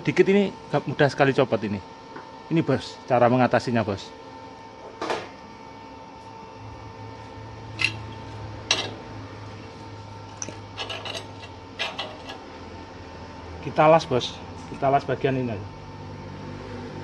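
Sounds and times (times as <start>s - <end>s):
spanner clinking on metal: 10.4s - 12.4s.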